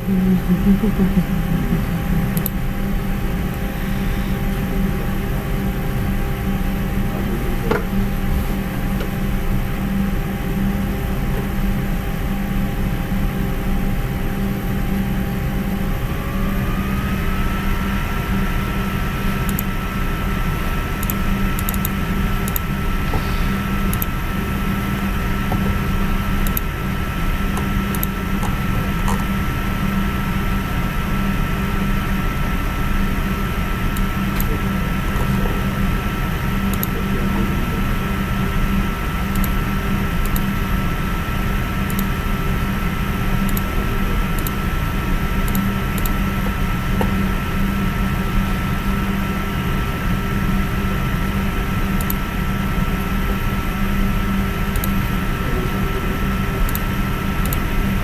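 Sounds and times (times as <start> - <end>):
machine hum: 0.0 - 58.0
whining tones: 0.0 - 58.0
faint clicks: 19.5 - 19.7, 23.9 - 24.1.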